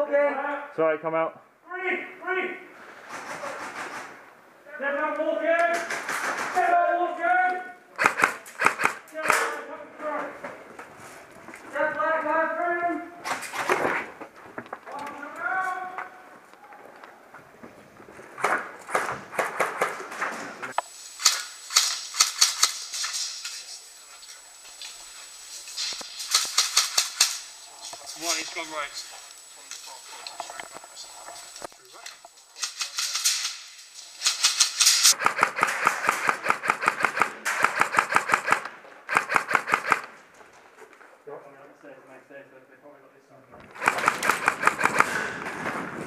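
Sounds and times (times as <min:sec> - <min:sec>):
airsoft gun firing bursts: 0:08.0 - 0:09.5, 0:21.2 - 0:23.2, 0:26.0 - 0:27.5, 0:34.2 - 0:40.1, 0:43.7 - 0:45.4.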